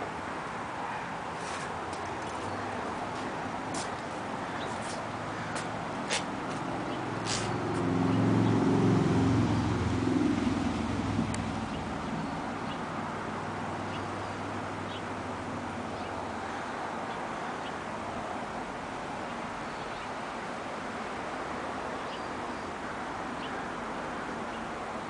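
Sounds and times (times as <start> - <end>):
vehicle engine humming: 0.0 - 19.7.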